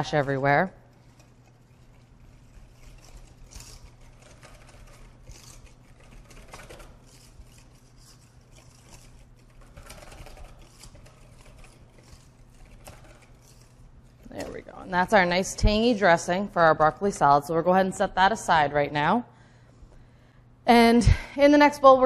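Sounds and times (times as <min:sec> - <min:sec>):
whisk beating in metal bowl: 0:00.0 - 0:15.8.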